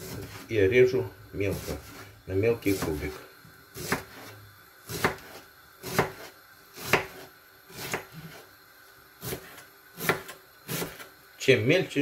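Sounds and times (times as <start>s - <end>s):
knife chopping on wooden board: 0.0s - 0.4s, 2.7s - 3.1s, 3.8s - 8.4s, 9.2s - 11.1s.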